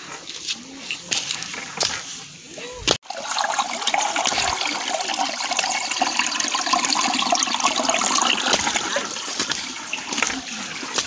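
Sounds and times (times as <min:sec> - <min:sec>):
stream water running over rocks: 0:03.0 - 0:11.0.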